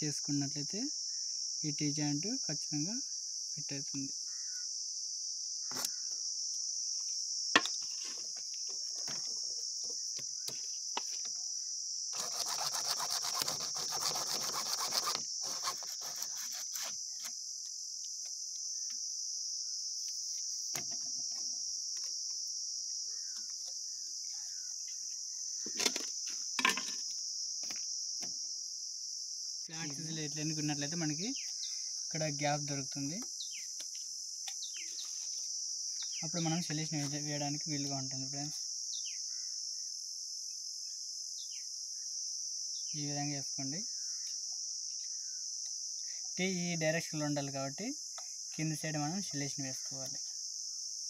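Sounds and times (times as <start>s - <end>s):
crickets chirping: 0.0s - 51.0s
saw rasping through plastic pipe: 12.1s - 17.3s.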